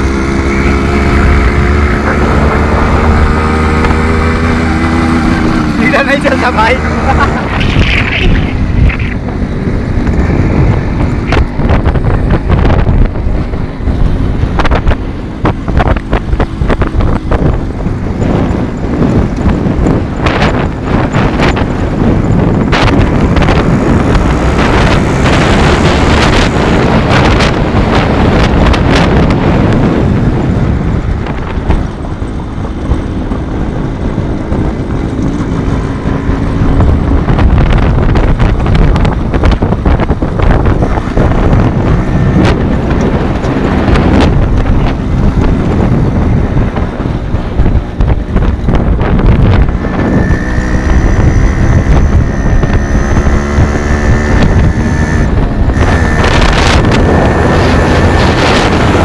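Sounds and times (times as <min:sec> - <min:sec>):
motorcycle engines running: 0:00.0 - 0:59.0
wind buffeting microphone: 0:00.0 - 0:59.0.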